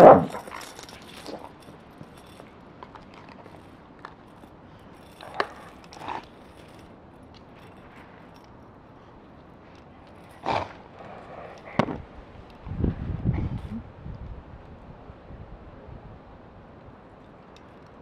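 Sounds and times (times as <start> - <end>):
metal dog chain clinking: 0.0 - 11.8.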